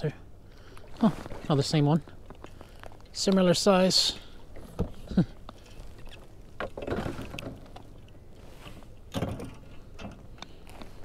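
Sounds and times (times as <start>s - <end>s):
taps and clicks on hull: 4.5s - 11.0s.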